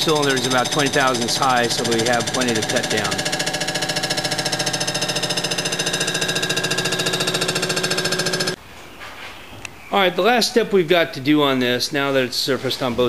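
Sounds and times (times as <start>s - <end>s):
resurfacing machine pulsing chatter: 0.0s - 8.6s.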